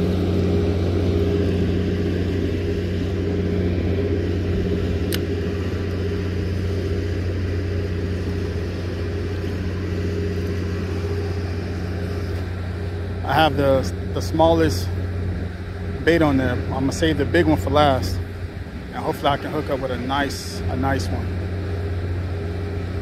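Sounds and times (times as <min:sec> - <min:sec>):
low mechanical hum: 0:00.0 - 0:23.0
sharp click: 0:05.0 - 0:05.3.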